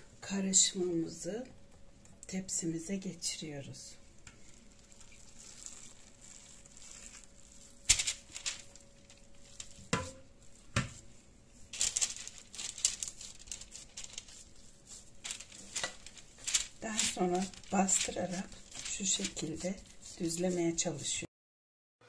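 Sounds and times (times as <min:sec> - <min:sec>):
baking paper crinkling: 0:04.0 - 0:21.3.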